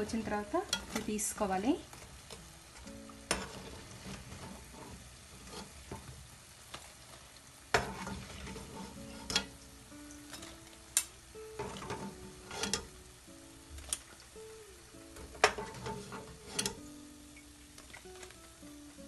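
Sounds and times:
dumplings sizzling in hot oil: 0:00.0 - 0:19.0
metal spoon scraping a pan: 0:00.6 - 0:01.3, 0:02.2 - 0:06.1, 0:07.7 - 0:09.6, 0:11.6 - 0:13.0, 0:15.2 - 0:16.9.

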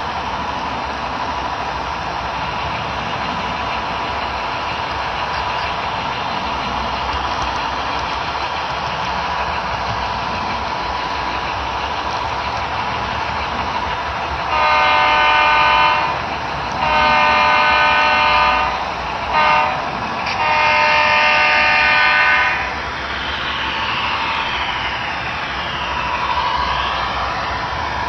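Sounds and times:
model train running: 0:00.0 - 0:28.0
model train horn blowing: 0:14.5 - 0:16.2, 0:16.8 - 0:22.8.

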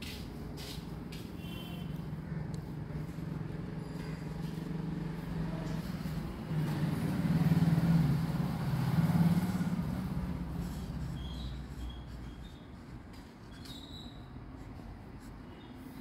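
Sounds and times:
low engine hum: 0:02.0 - 0:13.3.

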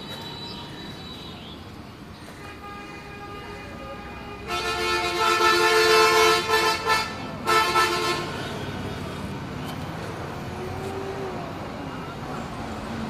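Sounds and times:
vehicle horn honking: 0:02.4 - 0:08.8.

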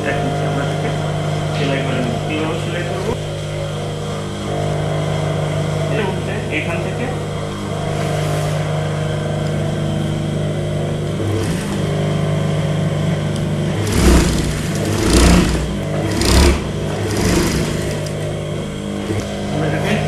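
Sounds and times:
sewing machine motor hum: 0:07.6 - 0:20.0
sewing machine stitching: 0:11.2 - 0:11.9, 0:13.7 - 0:18.2, 0:19.0 - 0:19.4.

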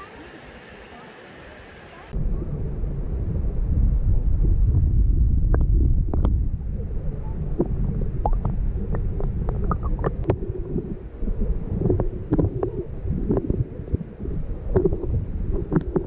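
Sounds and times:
muffled underwater water rumble: 0:00.0 - 0:16.0
sharp underwater clicks: 0:05.5 - 0:06.4, 0:07.6 - 0:10.4.

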